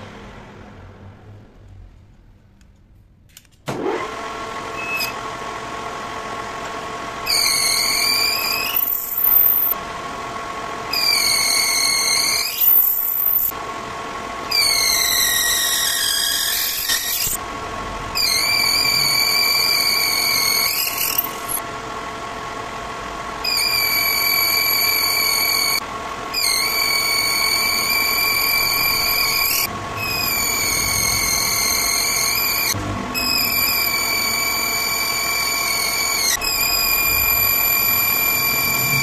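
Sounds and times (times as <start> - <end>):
metal lathe motor humming: 3.8 - 39.0
high-pitched cutting squeal: 4.7 - 5.2, 7.2 - 9.8, 10.9 - 13.6, 14.5 - 17.4, 18.0 - 21.6, 23.4 - 39.0.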